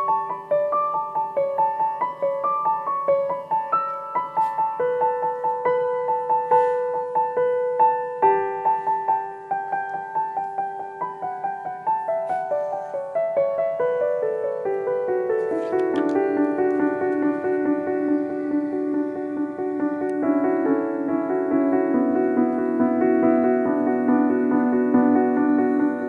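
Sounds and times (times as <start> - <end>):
solo piano melody: 0.0 - 26.0.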